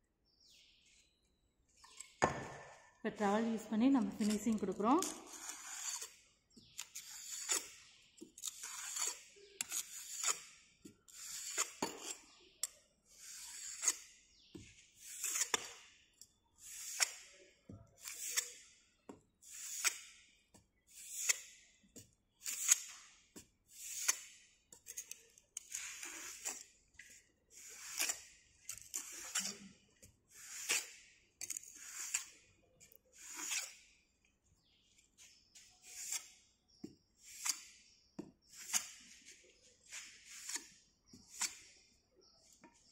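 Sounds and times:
trowel scraping packed sand: 4.1s - 12.4s, 13.1s - 14.2s, 14.9s - 16.0s, 16.6s - 17.3s, 18.0s - 18.8s, 19.4s - 21.7s, 22.4s - 32.5s, 33.1s - 33.9s, 35.2s - 36.4s, 37.2s - 37.8s, 38.4s - 41.8s.

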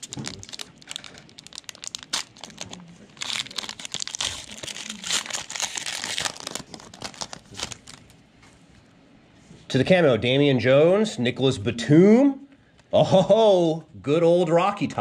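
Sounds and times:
plastic wrapper crinkling and tearing: 0.0s - 8.2s.

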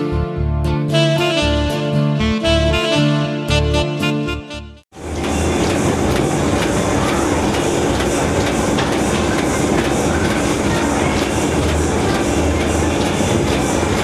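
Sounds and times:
machine mechanical clatter: 5.0s - 14.0s.

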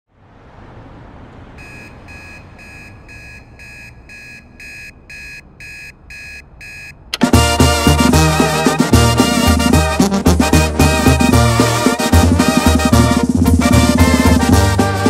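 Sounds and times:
alarm clock beeping: 1.6s - 7.0s.

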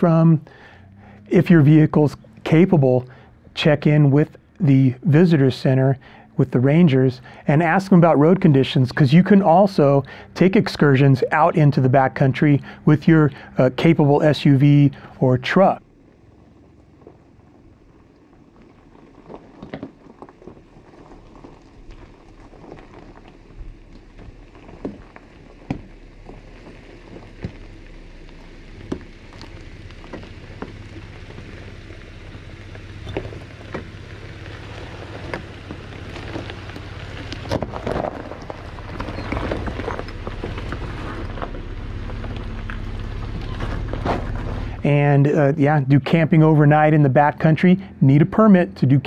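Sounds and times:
engine running low: 0.0s - 49.0s
tyres crunching on rocks: 15.6s - 45.0s.

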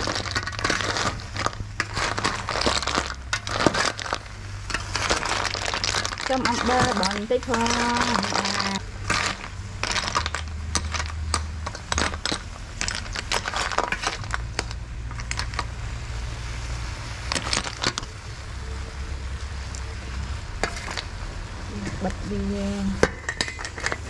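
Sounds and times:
shells clattering in metal basin: 0.0s - 15.7s, 20.6s - 21.1s, 23.0s - 24.0s.

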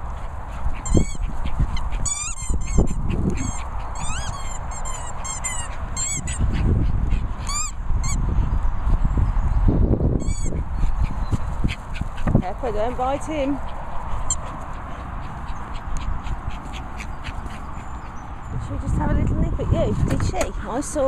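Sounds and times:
squeaky toy squeaking: 0.8s - 1.2s, 2.0s - 6.5s, 7.5s - 8.2s, 10.2s - 10.6s.

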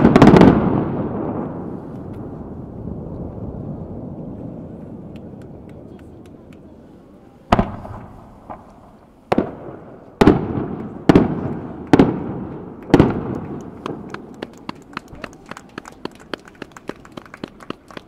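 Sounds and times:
firework shells bursting: 7.5s - 14.9s.

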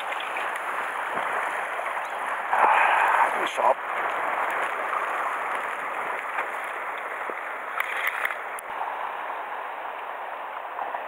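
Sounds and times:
water washing against rocks: 0.0s - 8.8s.

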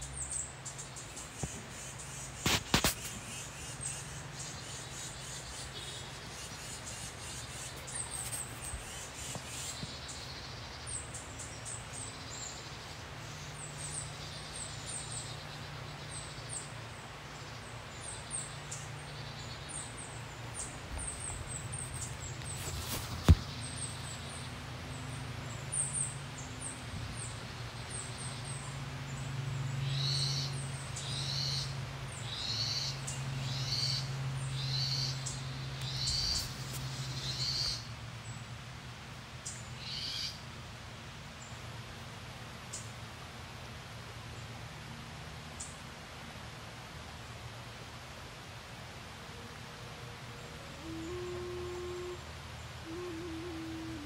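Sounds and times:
birds chirping: 0.0s - 38.4s, 50.4s - 54.0s
low steady hum: 30.5s - 54.0s.

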